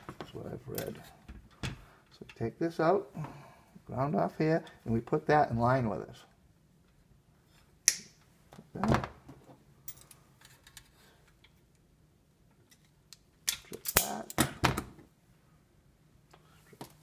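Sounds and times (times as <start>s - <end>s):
wire stripper snapping: 13.5s - 14.6s.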